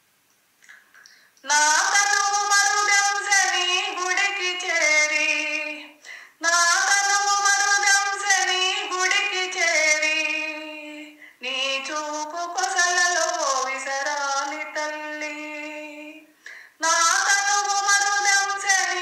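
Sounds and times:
woman singing devotional song: 1.0 - 19.0.

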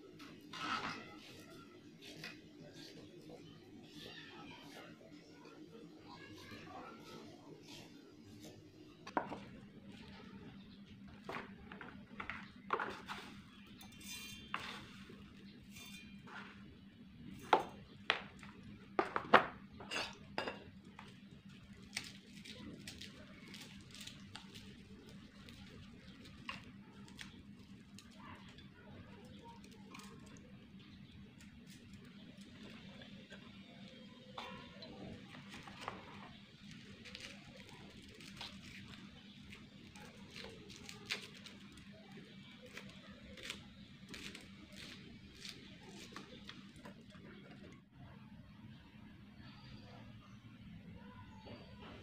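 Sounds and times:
garlic cloves being peeled: 21.0 - 34.0, 35.2 - 47.2.

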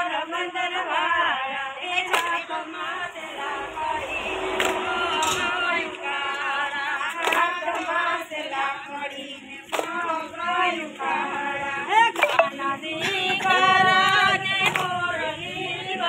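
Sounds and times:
women singing together: 0.0 - 16.0
hand claps: 2.0 - 2.4, 4.6 - 5.5, 7.0 - 8.0, 9.6 - 10.2, 12.1 - 15.0.

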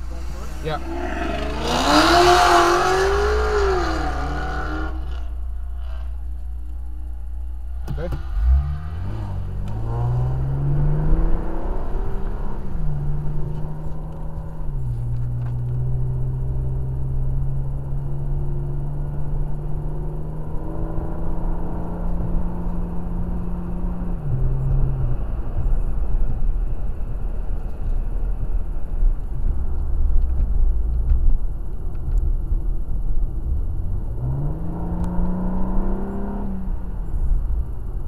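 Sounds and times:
car engine accelerating: 0.0 - 38.0.

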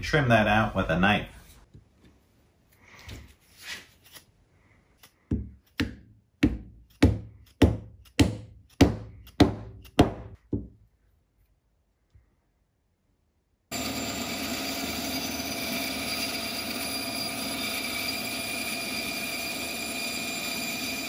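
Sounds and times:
mallet striking wooden wedge: 5.3 - 10.7.

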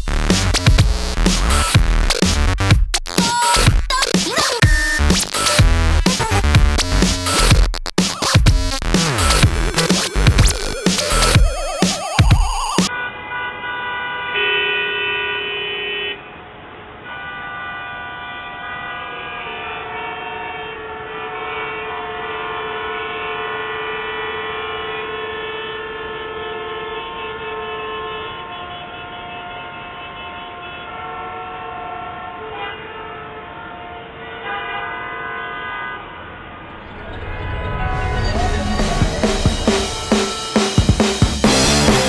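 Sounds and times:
vehicle horns honking: 12.9 - 16.4, 17.0 - 42.0.

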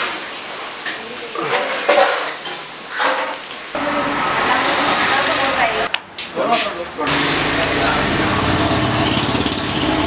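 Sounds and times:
fish sizzling in hot oil: 0.0 - 5.6
pans and utensils knocking: 1.4 - 3.4.

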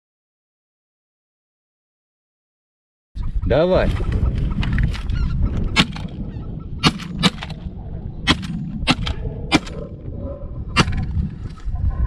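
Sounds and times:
shotgun shots: 5.7 - 6.2, 6.8 - 9.9.

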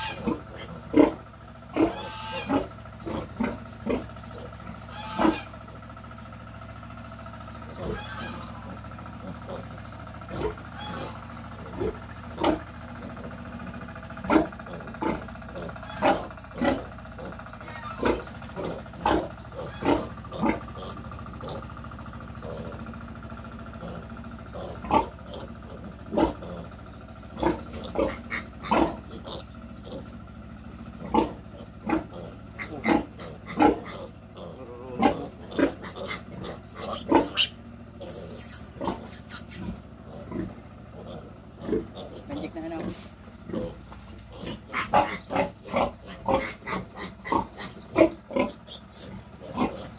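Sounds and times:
piglet squealing: 0.0 - 5.5, 7.7 - 9.7, 10.4 - 11.2, 15.6 - 16.3, 17.6 - 21.0, 27.4 - 30.1, 32.0 - 40.3, 43.6 - 49.9.

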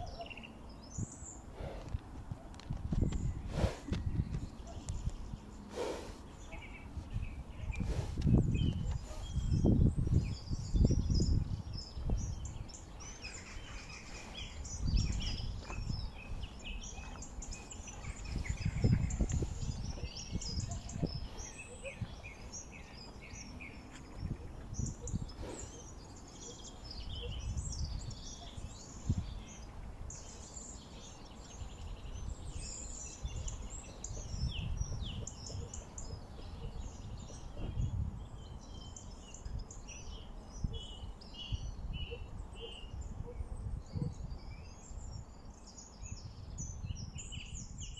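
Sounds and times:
small birds chirping and singing: 0.0 - 47.9
wind rumbling on microphone: 0.0 - 47.9.

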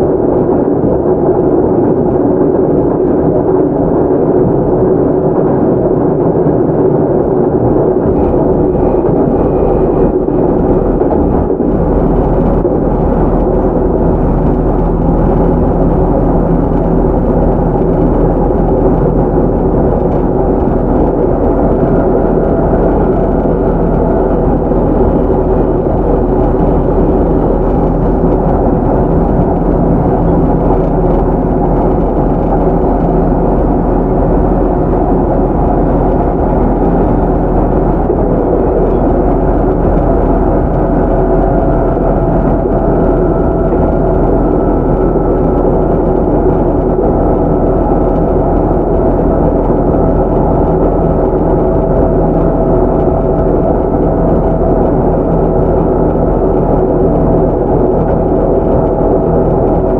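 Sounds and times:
train wheels rumbling on rail: 0.0 - 59.9
traction motor hum: 7.7 - 59.9.

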